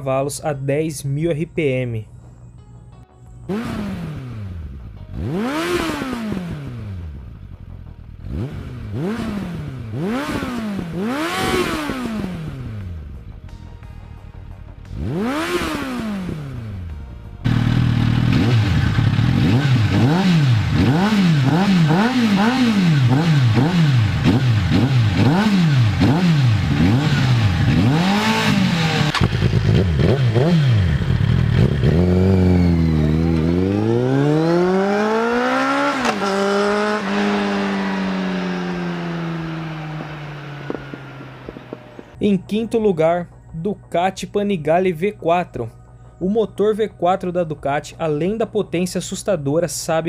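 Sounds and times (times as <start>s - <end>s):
motorcycle engine revving: 3.5s - 13.5s, 14.7s - 42.2s.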